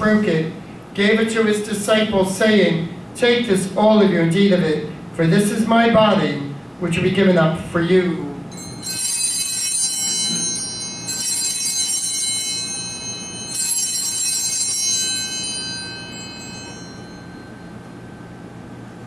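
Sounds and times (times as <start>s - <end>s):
small bells ringing: 8.5s - 18.2s.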